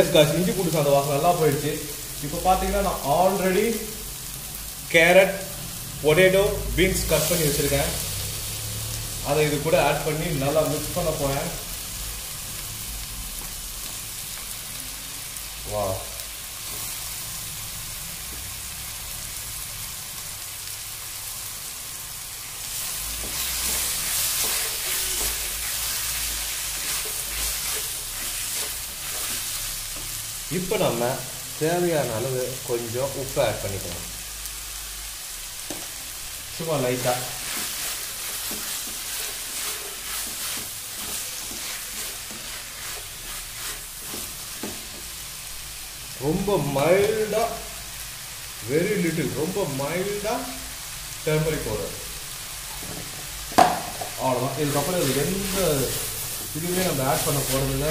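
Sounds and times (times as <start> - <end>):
vegetables sizzling in a pan: 0.0 - 57.9
wooden spatula scraping: 22.6 - 31.0, 35.7 - 45.3, 53.9 - 57.9.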